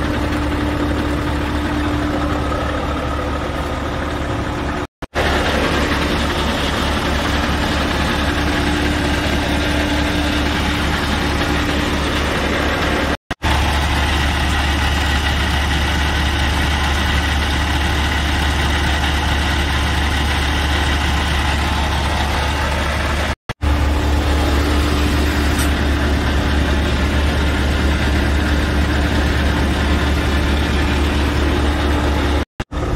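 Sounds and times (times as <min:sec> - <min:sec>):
diesel truck engine idling: 0:00.0 - 0:32.9.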